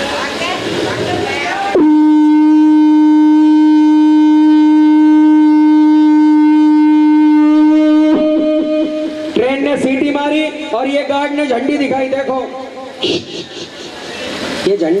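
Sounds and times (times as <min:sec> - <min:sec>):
man imitating train whistle: 0:01.8 - 0:09.4.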